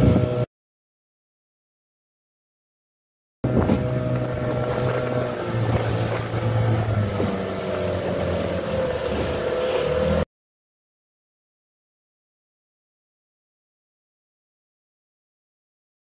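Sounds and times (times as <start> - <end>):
boat motor running: 0.0 - 0.5, 3.4 - 10.2
wind on microphone: 0.0 - 0.5, 3.4 - 10.2
water rushing past hull: 3.4 - 10.3.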